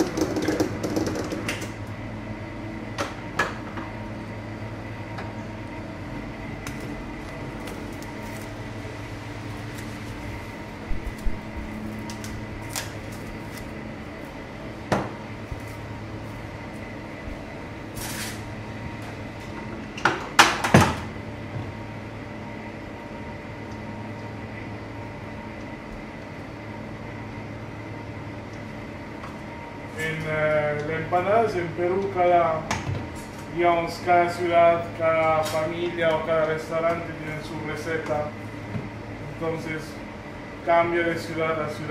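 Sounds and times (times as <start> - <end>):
electrical hum: 0.0 - 41.9
cling film rustling: 7.5 - 8.7.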